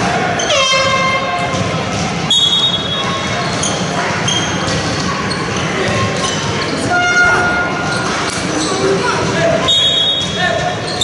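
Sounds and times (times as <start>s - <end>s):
sneaker squeaks on court floor: 0.3s - 11.0s.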